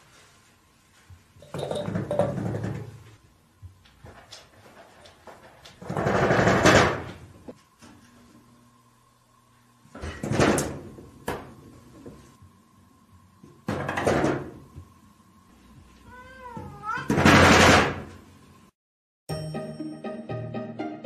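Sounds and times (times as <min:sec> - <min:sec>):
sliding door rattling crashes: 0:05.8 - 0:07.2, 0:17.1 - 0:18.1
cat meowing: 0:16.0 - 0:17.2.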